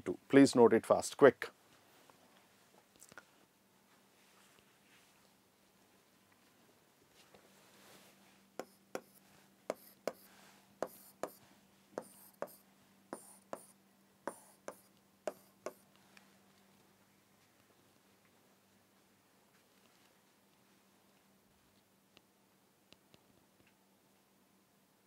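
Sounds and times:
pen tapping and scratching on board: 0:08.6 - 0:11.4, 0:12.0 - 0:12.6, 0:13.2 - 0:15.8.

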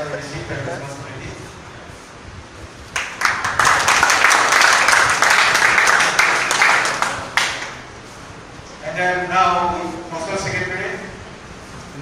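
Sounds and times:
audience applauding: 0:02.9 - 0:07.8.

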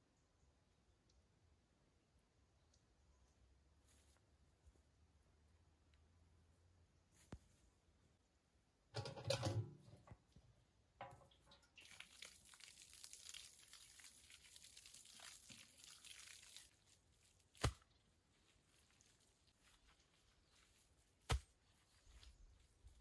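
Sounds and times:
water splashing onto soil: 0:11.2 - 0:17.9.

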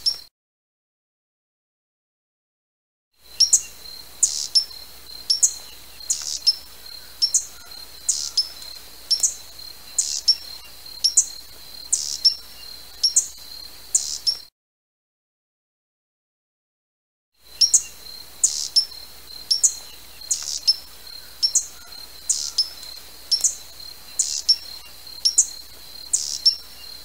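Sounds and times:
hummingbird chip calls: 0:03.3 - 0:14.5, 0:17.5 - 0:27.0.

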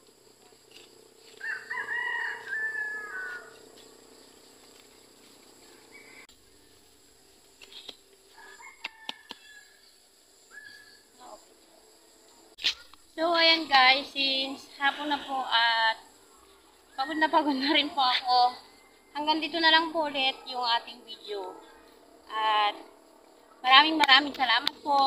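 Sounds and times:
rooster crowing: 0:01.4 - 0:03.7, 0:05.6 - 0:06.8, 0:08.3 - 0:11.0, 0:18.6 - 0:19.4.

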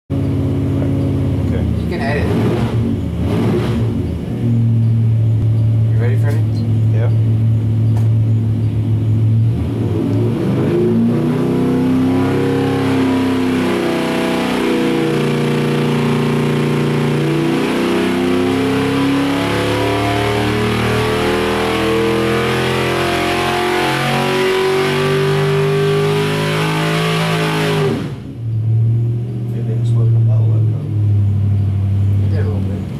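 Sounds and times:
engine revving under load: 0:00.1 - 0:32.9.

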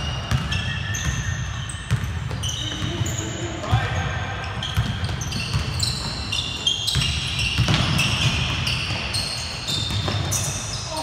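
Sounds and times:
sneaker squeaks: 0:00.0 - 0:11.0
basketball dribbling on wooden floor: 0:04.6 - 0:06.3, 0:06.9 - 0:10.5.

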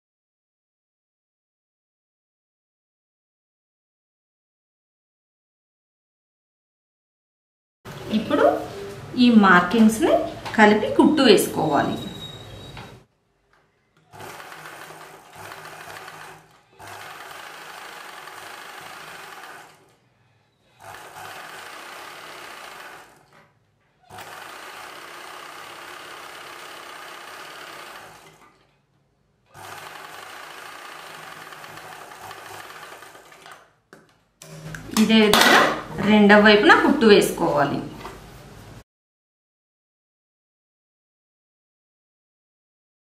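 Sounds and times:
sewing machine running: 0:14.1 - 0:20.0, 0:20.7 - 0:23.4, 0:24.1 - 0:28.6, 0:29.5 - 0:33.8.

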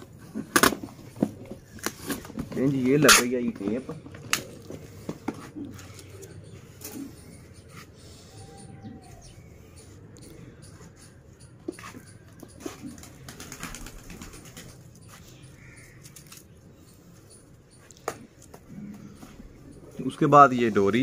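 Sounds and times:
faint bird calls: 0:04.4 - 0:21.0.

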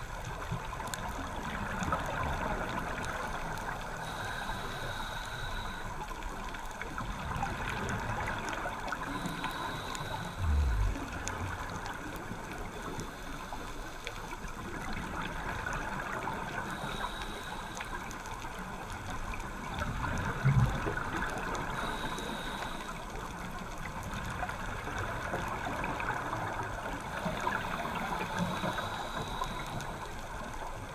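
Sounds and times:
regulator breathing hiss: 0:04.0 - 0:06.1, 0:09.0 - 0:11.2, 0:16.5 - 0:18.2, 0:21.6 - 0:23.2, 0:27.2 - 0:30.2
gurgling exhaled bubbles: 0:10.2 - 0:12.7
low thumps: 0:10.4 - 0:11.2.

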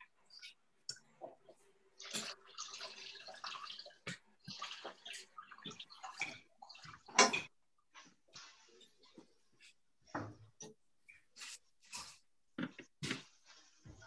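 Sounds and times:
water running from a tap: 0:02.0 - 0:07.4.

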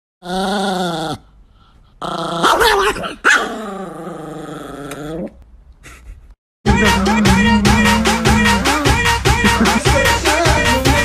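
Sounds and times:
dog growling and snarling: 0:00.2 - 0:01.3, 0:02.0 - 0:05.4.

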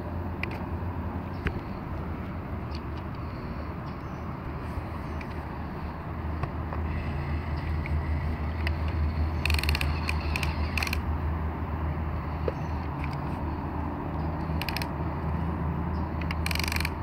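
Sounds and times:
gears ratcheting clicks: 0:06.8 - 0:11.1, 0:14.1 - 0:15.3, 0:16.1 - 0:17.0
toy electric motors whirring: 0:08.6 - 0:11.0, 0:14.4 - 0:14.9, 0:16.2 - 0:17.0.

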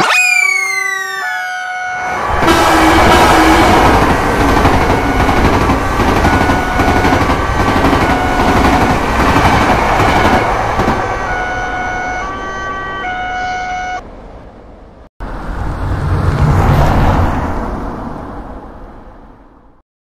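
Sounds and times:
railroad crossing alarm tones: 0:00.0 - 0:14.1
passing train rumble and clatter: 0:01.8 - 0:19.8.

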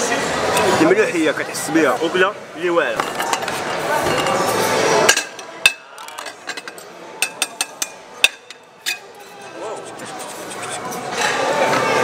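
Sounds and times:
metal utensils clinking on plates: 0:03.0 - 0:12.0.

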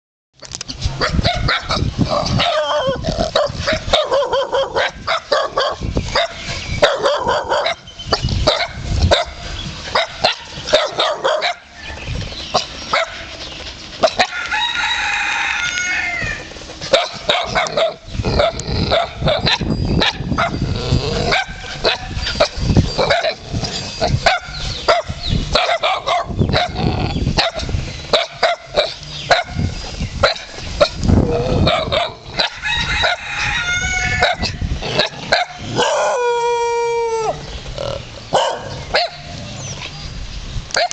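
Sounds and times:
dogs barking: 0:01.0 - 0:11.8, 0:12.5 - 0:14.5, 0:16.1 - 0:33.3, 0:33.9 - 0:39.4
rooster crowing: 0:14.2 - 0:16.5, 0:32.4 - 0:34.5.

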